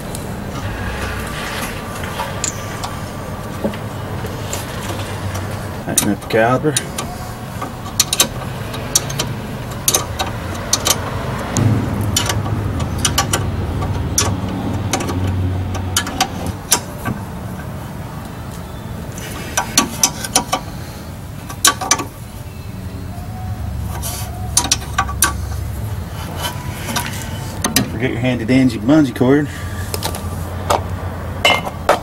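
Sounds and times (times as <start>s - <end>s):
wrench clicking on metal: 7.9s - 11.0s
steady low rumble: 9.3s - 19.2s.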